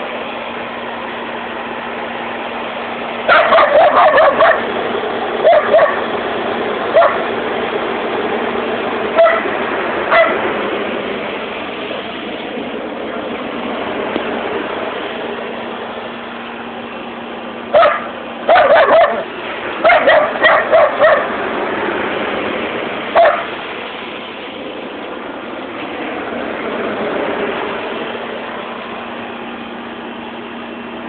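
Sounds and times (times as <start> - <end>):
steady background noise: 0.0 - 31.0
dog barking: 3.3 - 4.7, 5.4 - 6.0, 6.9 - 7.2, 9.2 - 9.5, 10.1 - 10.4, 17.7 - 21.3, 23.2 - 23.5.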